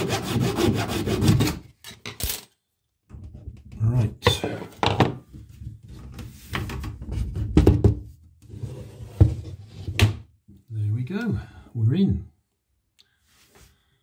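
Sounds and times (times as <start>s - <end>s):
bath panel knocking and scraping: 3.1s - 8.2s.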